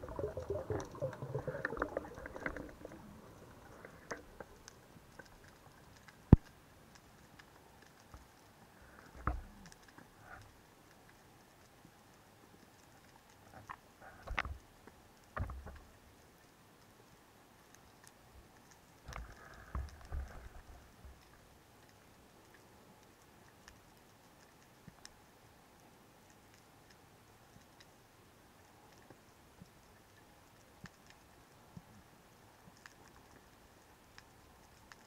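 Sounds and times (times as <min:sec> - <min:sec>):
underwater sharp clicks: 0:00.0 - 0:08.5.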